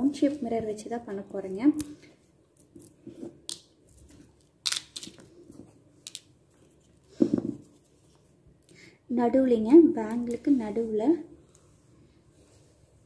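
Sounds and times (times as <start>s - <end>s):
hands handling small stones: 1.8s - 8.3s.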